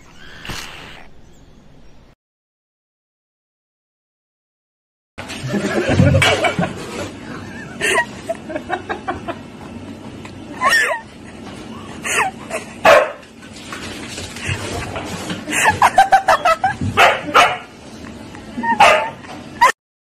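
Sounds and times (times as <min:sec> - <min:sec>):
dog barking and yipping: 0:12.8 - 0:13.2, 0:16.4 - 0:17.7, 0:18.6 - 0:19.7.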